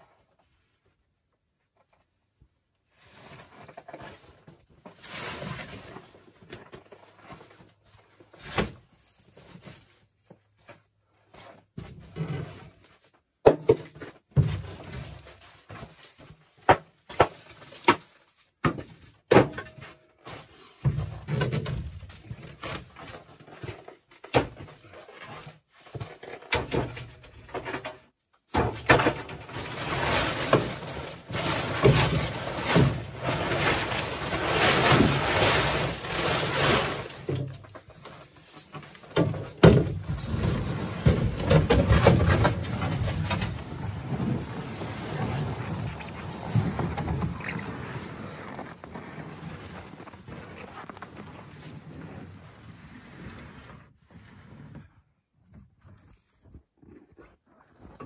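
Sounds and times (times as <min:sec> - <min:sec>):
plastic tarp rustling and crinkling: 0:02.9 - 0:13.1, 0:20.0 - 0:54.7.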